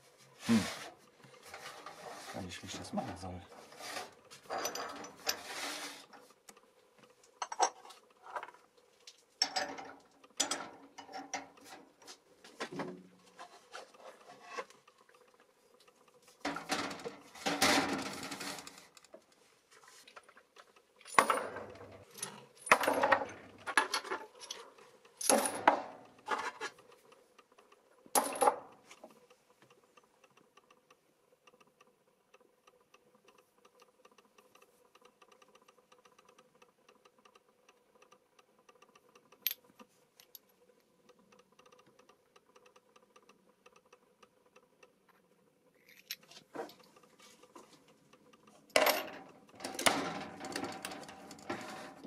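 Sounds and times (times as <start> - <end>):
metal scraping: 50.1 - 52.0.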